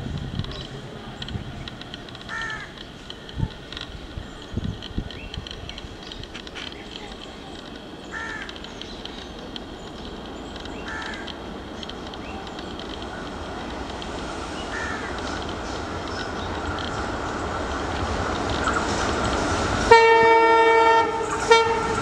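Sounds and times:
diesel locomotive rumble: 0:00.0 - 0:22.0
crow cawing: 0:02.3 - 0:02.8, 0:08.1 - 0:08.5, 0:10.9 - 0:11.3, 0:14.7 - 0:15.1.

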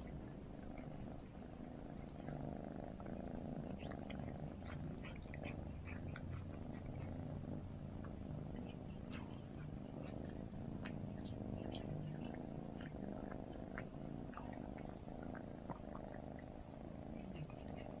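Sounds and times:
cat purring: 0:00.0 - 0:18.0
cat tongue licking clicks: 0:08.0 - 0:17.8.

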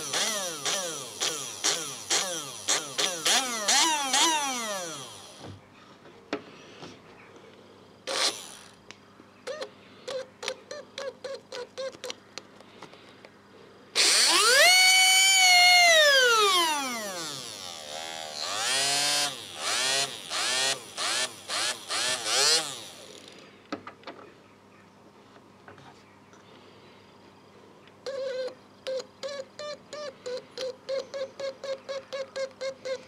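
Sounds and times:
small electric motor whining: 0:00.0 - 0:05.6, 0:08.0 - 0:08.8, 0:14.0 - 0:23.4.

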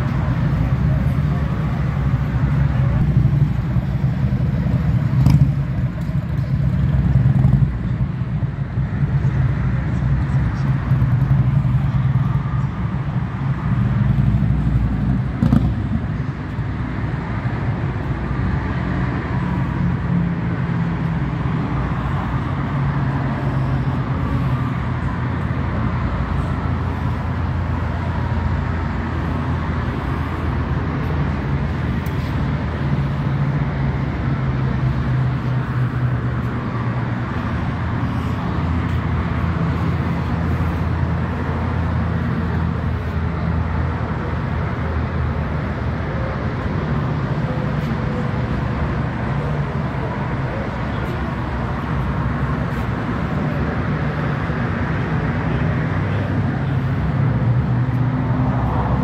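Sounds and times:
vehicle engine idling: 0:00.0 - 0:59.0.

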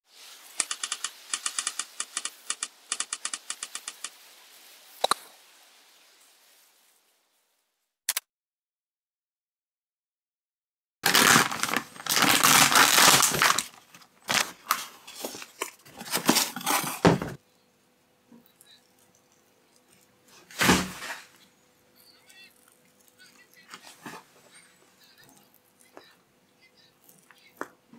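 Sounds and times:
paper wrapping crinkling and tearing: 0:11.0 - 0:17.4, 0:19.8 - 0:21.5, 0:22.2 - 0:26.0
knife scraping into bread: 0:15.3 - 0:17.2.

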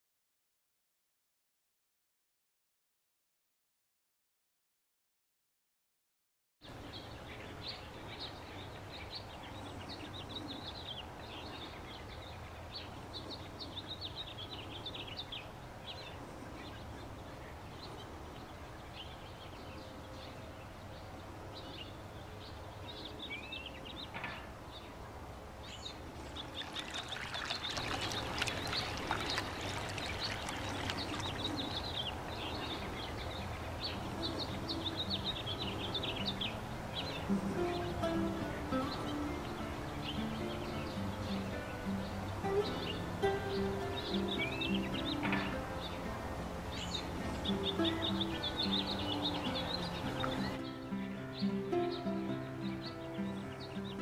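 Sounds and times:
songbirds chirping: 0:06.6 - 0:54.0
running water splashing: 0:26.2 - 0:31.9.

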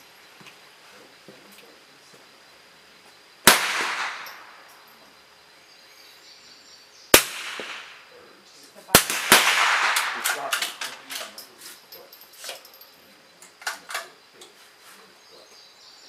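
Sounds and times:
rifle shots: 0:03.4 - 0:04.8, 0:07.1 - 0:08.1, 0:08.9 - 0:11.3.

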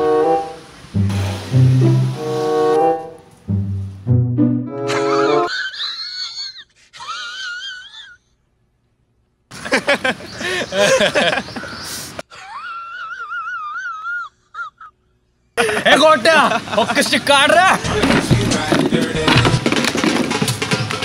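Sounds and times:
brass music sting: 0:00.0 - 0:05.5
wheezing laughter: 0:04.9 - 0:08.4, 0:09.6 - 0:15.9.

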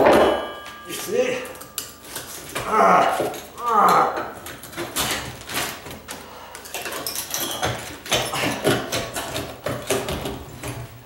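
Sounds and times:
metallic squeaks: 0:07.0 - 0:08.4.

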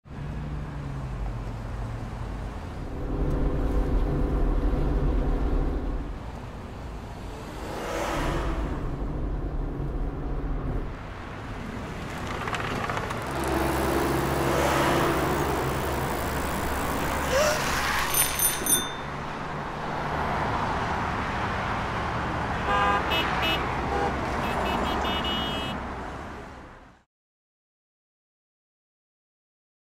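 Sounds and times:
car engines running: 0:00.1 - 0:22.6
high ringing tones: 0:18.0 - 0:19.6.

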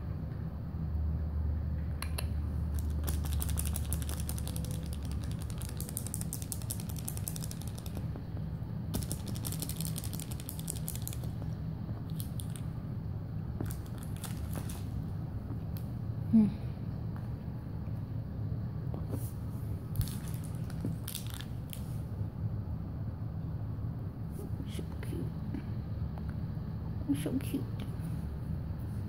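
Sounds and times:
low steady hum: 0:00.0 - 0:29.0
kitten claws scratching: 0:02.0 - 0:08.2, 0:09.0 - 0:12.7, 0:13.6 - 0:15.0.

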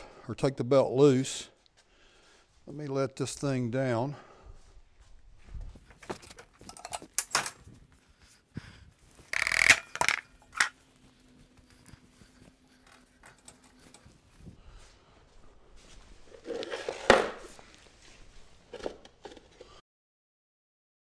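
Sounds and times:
metal clinking and clanking: 0:06.0 - 0:07.7, 0:09.3 - 0:10.8.

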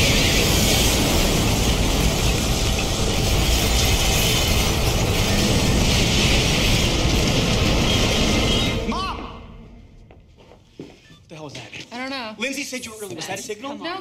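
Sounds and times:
fire roaring: 0:00.0 - 0:09.0.

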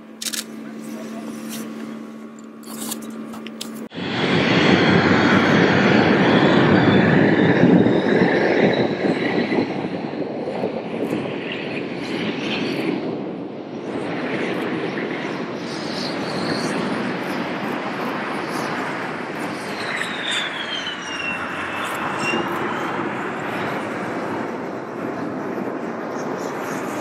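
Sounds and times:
jet engine rushing: 0:00.0 - 0:27.0.

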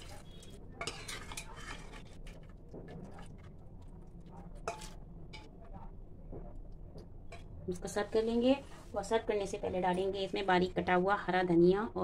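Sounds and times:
ladle scraping pot: 0:00.0 - 0:03.6, 0:04.6 - 0:05.5.

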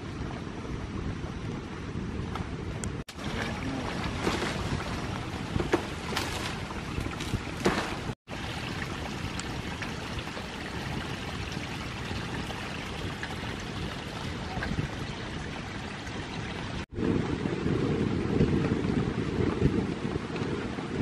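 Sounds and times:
water trickling over stones: 0:03.1 - 0:16.9.

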